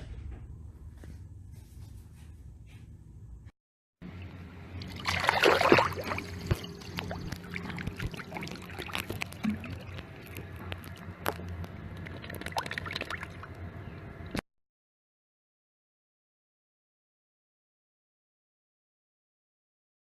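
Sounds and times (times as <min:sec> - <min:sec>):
dog splashing in shallow water: 0:04.9 - 0:10.4.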